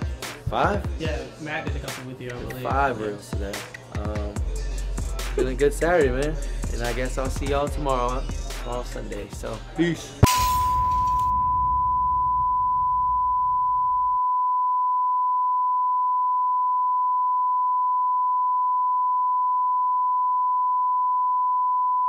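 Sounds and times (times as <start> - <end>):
steady high-pitched beep tone: 10.2 - 22.0.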